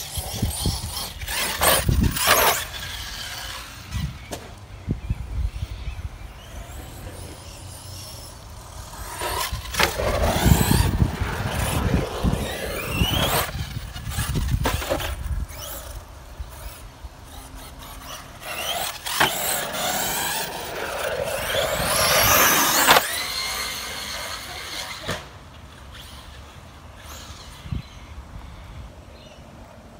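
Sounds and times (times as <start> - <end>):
electric motor whining: 5.7 - 16.7, 17.3 - 25.1.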